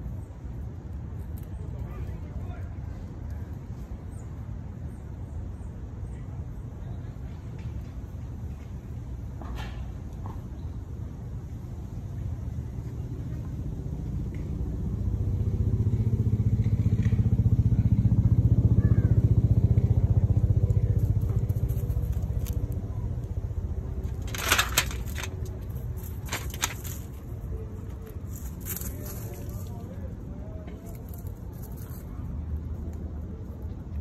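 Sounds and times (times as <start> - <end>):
vehicle engine passing by: 13.5 - 27.6
sharp crackling clicks: 24.0 - 27.1.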